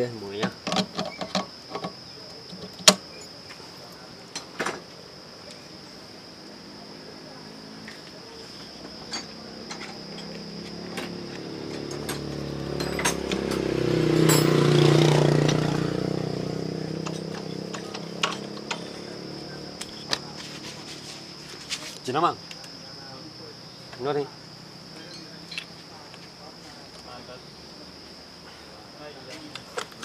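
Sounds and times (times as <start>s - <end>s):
motorcycle engine: 8.7s - 21.8s.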